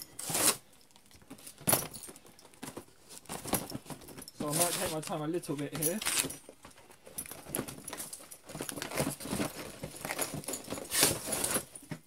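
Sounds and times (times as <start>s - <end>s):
cardboard box rustling and scraping: 3.1s - 5.0s, 8.5s - 11.8s.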